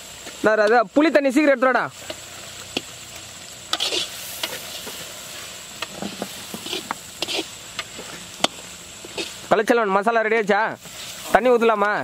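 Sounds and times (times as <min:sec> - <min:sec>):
masala sizzling in oil: 0:00.0 - 0:12.0
metal ladle scraping pan: 0:03.7 - 0:05.1, 0:05.8 - 0:07.6.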